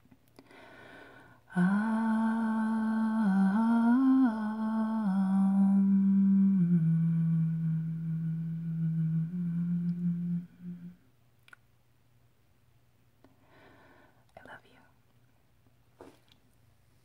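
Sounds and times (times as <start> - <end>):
soft breath: 0.4 - 1.5, 13.3 - 15.0
woman humming: 1.5 - 11.1.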